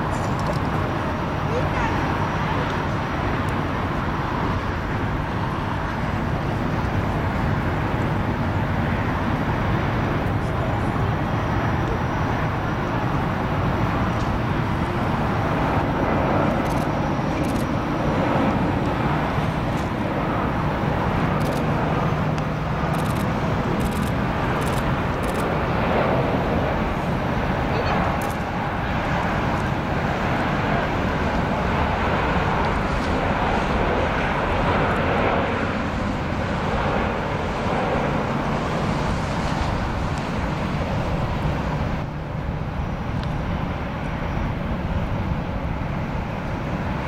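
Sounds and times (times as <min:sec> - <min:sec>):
jet engines rumbling: 0:00.0 - 0:47.0.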